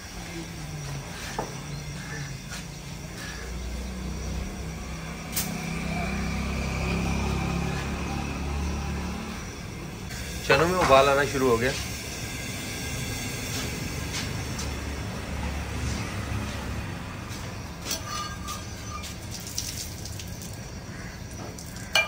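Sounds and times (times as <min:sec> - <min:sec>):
pot boiling with bubbling hiss: 0:10.1 - 0:15.2, 0:17.9 - 0:22.0.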